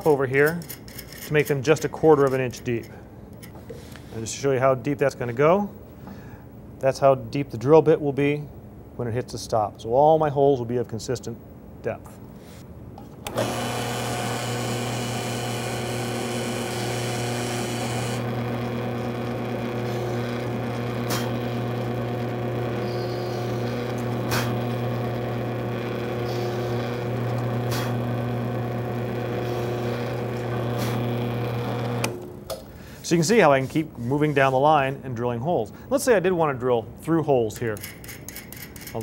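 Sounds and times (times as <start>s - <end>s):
drill press motor humming: 13.2s - 32.3s.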